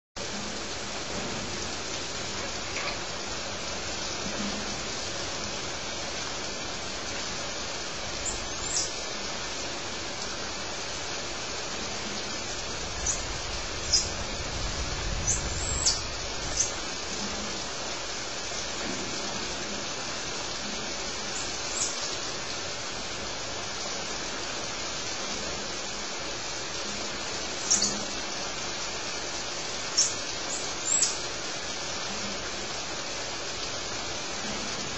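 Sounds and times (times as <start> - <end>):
steady hiss: 0.2 - 34.9
monkeys peeping: 27.6 - 28.0.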